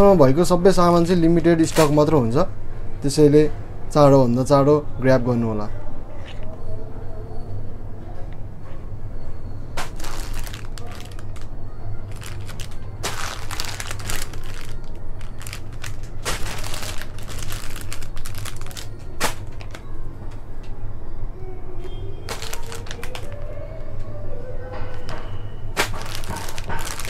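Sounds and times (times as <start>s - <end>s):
merchandise crinkling and rustling: 0.0s - 2.5s, 9.7s - 20.8s, 21.8s - 27.0s.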